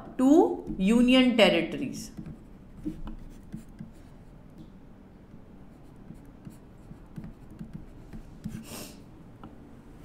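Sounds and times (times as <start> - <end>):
stylus scratching on tablet: 2.1 - 4.1, 5.7 - 8.7.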